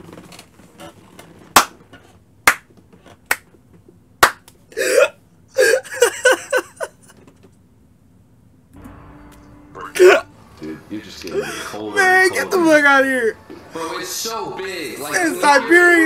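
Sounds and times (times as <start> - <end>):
person laughing hard: 5.6 - 7.2.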